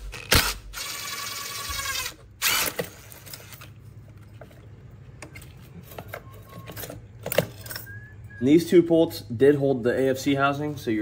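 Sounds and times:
cordless power tool whirring: 0:00.0 - 0:03.6.

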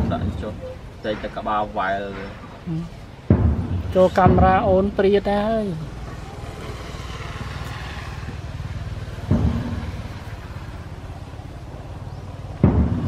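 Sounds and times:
engine rumbling: 0:00.0 - 0:13.0
dull thumps: 0:03.2 - 0:05.0, 0:09.2 - 0:10.3, 0:12.5 - 0:13.0.

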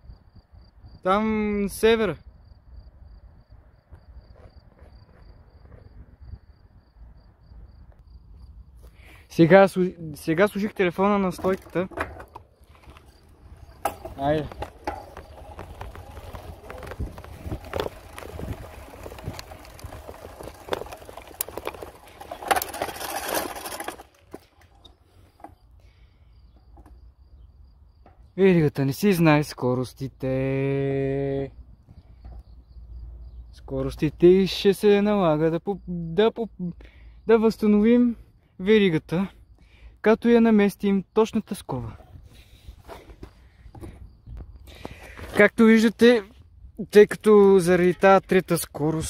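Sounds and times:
cricket chirping: 0:00.0 - 0:49.0
bicycle rattling over rough track: 0:09.4 - 0:29.2, 0:41.5 - 0:49.0
tyre noise: 0:10.2 - 0:25.8.

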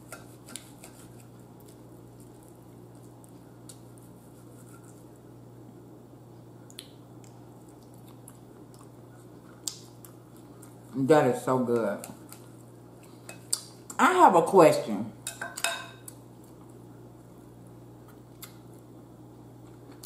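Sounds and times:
steady low hum: 0:00.0 - 0:20.0
chewing and wet mouth sounds: 0:06.6 - 0:11.0, 0:11.8 - 0:14.0.

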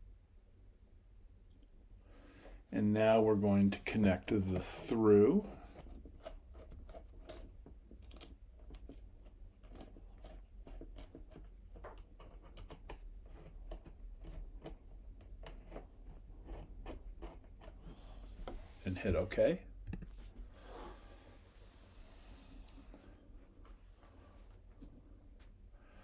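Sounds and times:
clicks and scrapes of connector: 0:05.8 - 0:17.9.

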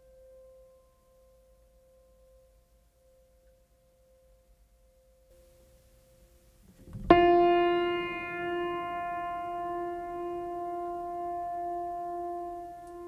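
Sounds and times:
ringing keyboard note: 0:06.9 - 0:13.0.

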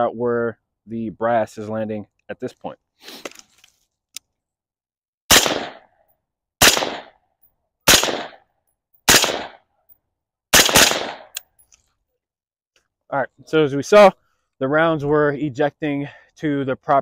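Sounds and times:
suppressed rifle shots: 0:05.3 - 0:05.9, 0:06.6 - 0:07.2, 0:07.9 - 0:08.4, 0:09.1 - 0:09.6, 0:10.5 - 0:11.4.

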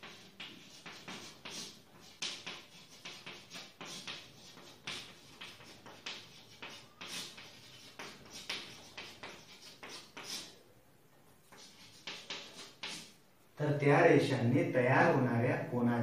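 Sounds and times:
chalk scratching on blackboard: 0:00.0 - 0:10.6, 0:11.4 - 0:13.2.

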